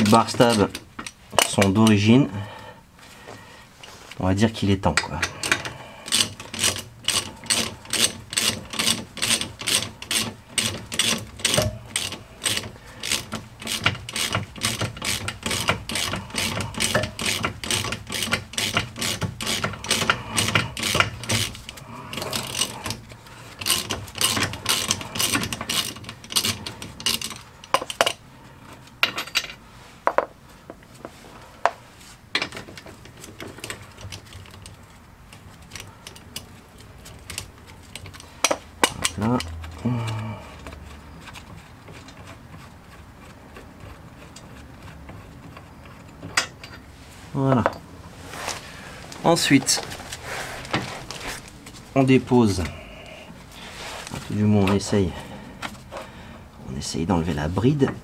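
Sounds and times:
hand ratchet clicking: 0:05.0 - 0:28.2, 0:33.2 - 0:42.3.

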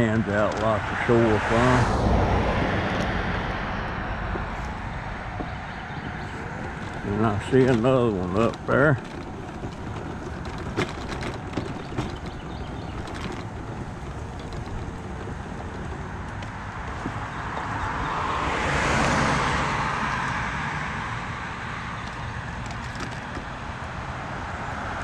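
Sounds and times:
mobility scooter rumbling over grass: 0:00.0 - 0:24.4
light knocks and rattles: 0:04.2 - 0:20.4, 0:22.0 - 0:23.6.

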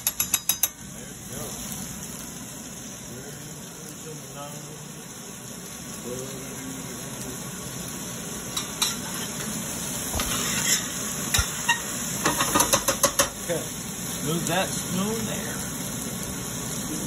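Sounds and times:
spoon clinking: 0:00.0 - 0:00.8
spoon stirring and scraping pan: 0:00.0 - 0:00.8, 0:08.5 - 0:13.4
chicken and broccoli sizzling in a pan: 0:00.0 - 0:17.0.

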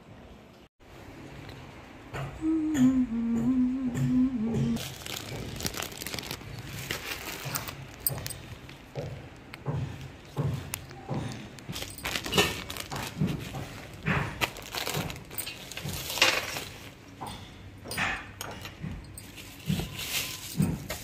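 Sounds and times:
plastic bags crinkling: 0:04.8 - 0:09.6, 0:10.2 - 0:17.1, 0:19.2 - 0:21.0.

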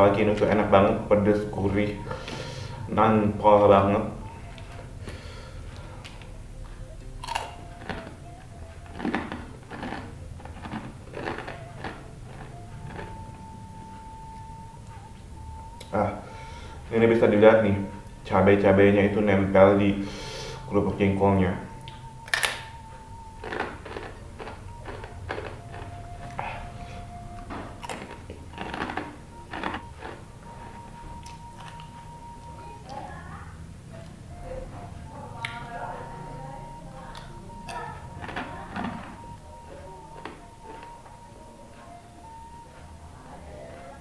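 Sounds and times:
crackers crunching: 0:07.1 - 0:13.4, 0:21.9 - 0:26.6, 0:27.3 - 0:32.0, 0:37.6 - 0:41.1.

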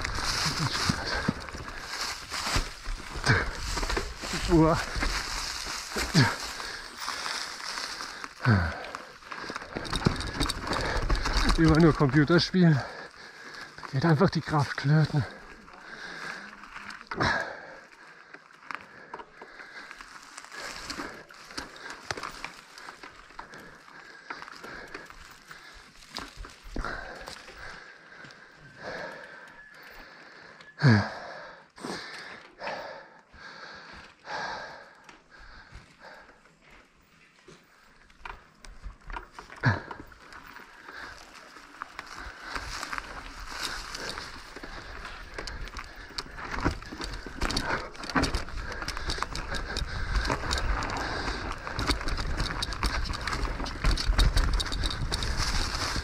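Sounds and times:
person panting: 0:00.0 - 0:11.8, 0:12.7 - 0:13.9, 0:15.1 - 0:36.8, 0:39.4 - 0:56.0
bike rattling over bumps: 0:00.0 - 0:30.0, 0:34.3 - 0:56.0
bike tyres rolling over dirt: 0:00.0 - 0:56.0
groaning sigh: 0:05.9 - 0:11.6, 0:28.8 - 0:33.1.

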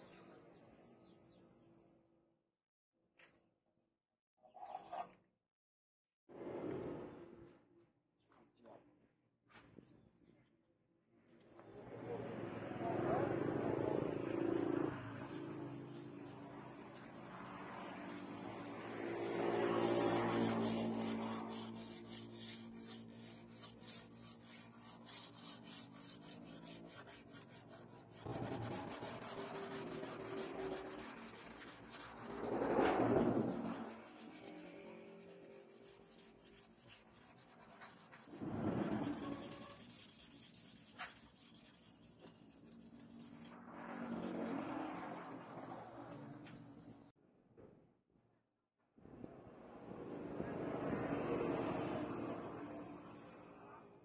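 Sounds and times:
abrasive block grinding knife blade: 0:19.0 - 0:47.1.

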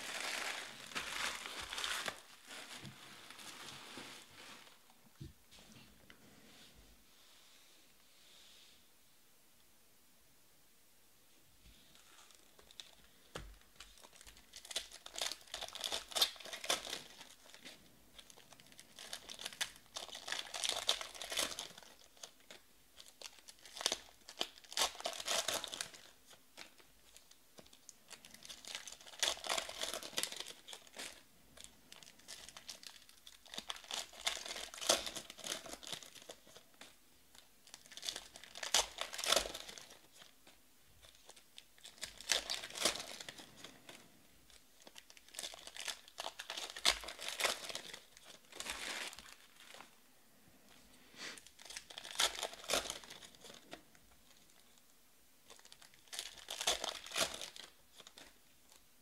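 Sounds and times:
foil wrappers tearing and crinkling: 0:00.0 - 0:03.8, 0:13.8 - 0:27.3, 0:28.1 - 0:31.2, 0:31.9 - 0:36.7, 0:37.3 - 0:40.3, 0:41.0 - 0:43.8, 0:44.8 - 0:49.8, 0:51.3 - 0:53.8, 0:55.5 - 0:58.8.

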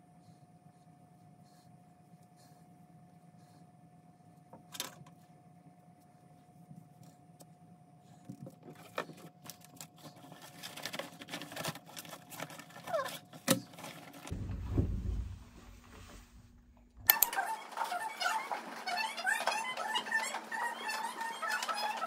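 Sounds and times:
low rumble: 0:14.3 - 0:17.1.

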